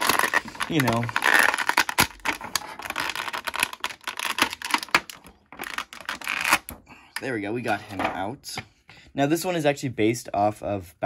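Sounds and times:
plastic packaging tray crackling: 0.0s - 6.8s.

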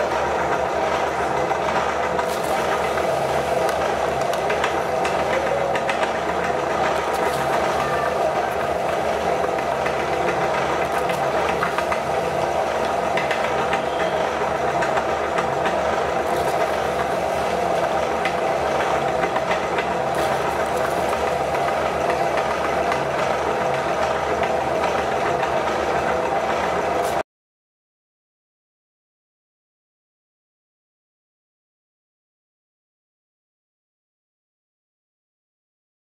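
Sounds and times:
meat grinder running: 0.0s - 27.2s.

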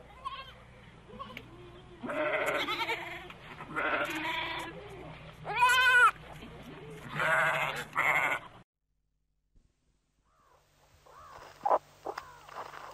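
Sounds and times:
goat bleating: 0.0s - 6.2s, 6.8s - 8.6s.

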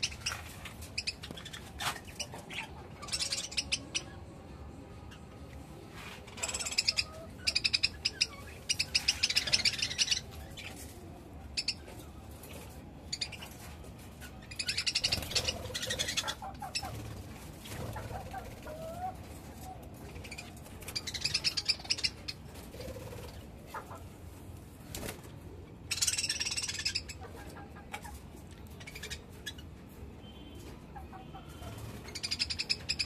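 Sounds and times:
budgerigars chattering: 6.4s - 10.2s, 14.5s - 17.0s.

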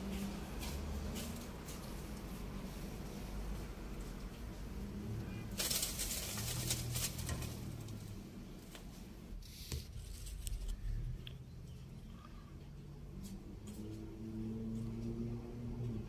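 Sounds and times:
dry leaves rustling and crackling: 4.8s - 8.2s.

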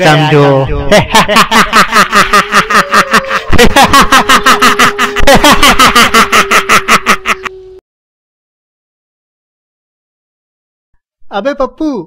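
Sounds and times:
man laughing menacingly: 0.0s - 7.6s.

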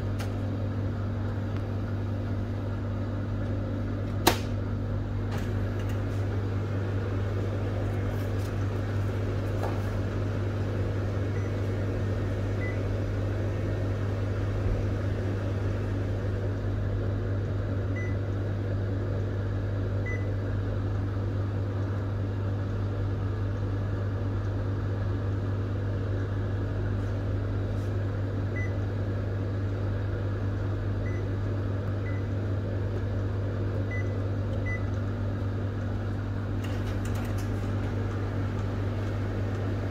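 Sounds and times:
printer humming: 0.0s - 19.2s, 31.4s - 39.9s.

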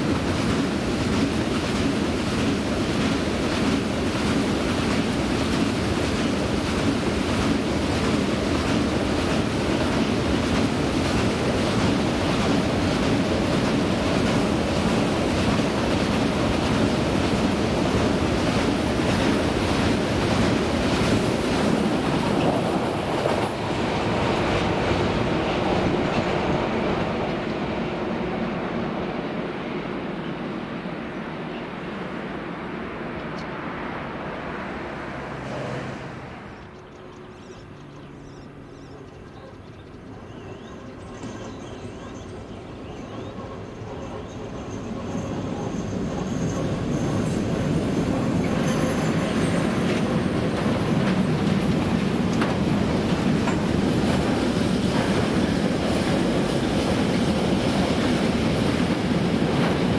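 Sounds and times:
clickety-clack of wheels: 0.0s - 23.6s, 36.6s - 59.9s
train wheels rumbling on rail: 0.0s - 59.9s.

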